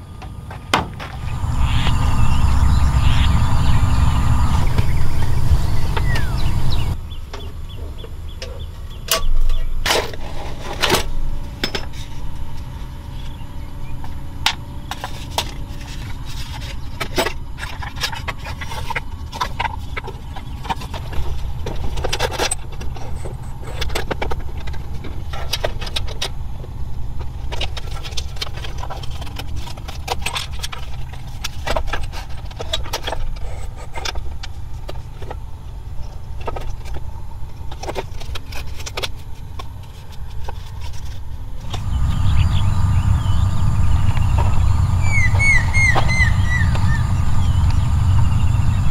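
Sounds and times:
steady low rumble: 0.0 - 48.9
loud rushing noise: 1.1 - 7.0.

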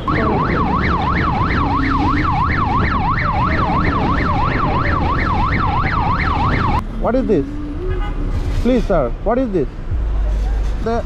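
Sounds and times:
police siren yelping: 0.0 - 6.8
motorcycle and road rumble: 0.0 - 11.0.

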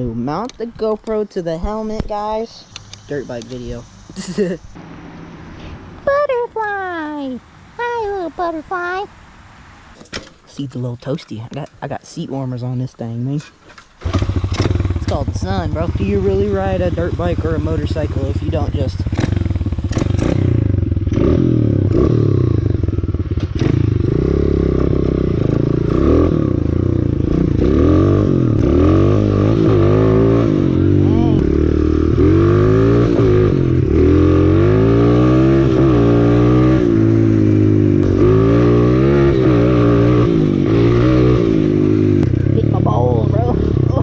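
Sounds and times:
dirt bike engine revving: 14.0 - 44.0.

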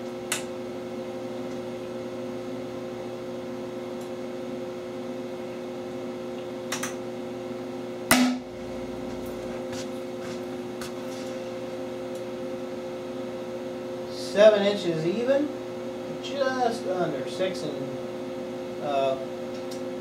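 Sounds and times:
electrical hum: 0.0 - 20.0
sharp bang: 8.1 - 9.5.

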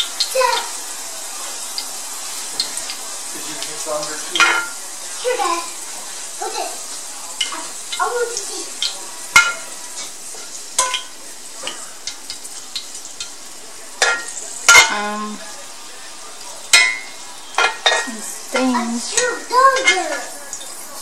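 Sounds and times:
leaves sizzling in hot oil: 0.0 - 21.0
metal tongs clattering on pan: 4.3 - 4.8, 7.4 - 15.3, 16.7 - 20.8.

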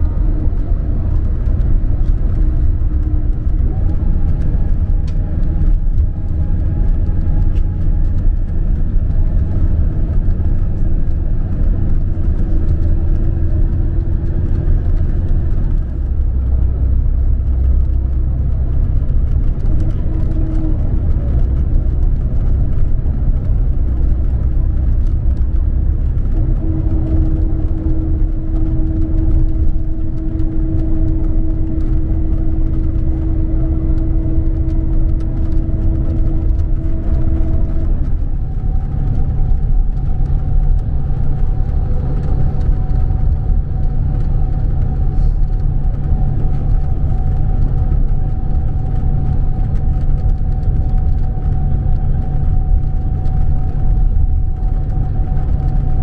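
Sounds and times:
steady hum: 0.0 - 18.5, 19.1 - 56.0
engine and road rumble: 0.0 - 56.0.

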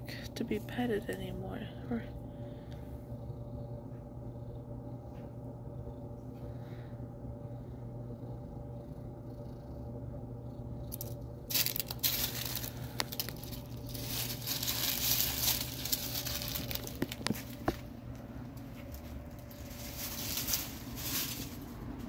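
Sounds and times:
low steady hum: 0.0 - 22.0
dry leaves rustling under cat: 10.9 - 22.0
leaves crackling: 10.9 - 22.0.

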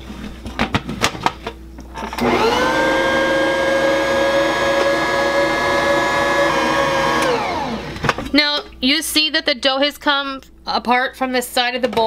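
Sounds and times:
stand mixer motor whine: 2.1 - 8.2
knocks and clicks at mixer: 4.0 - 8.2.

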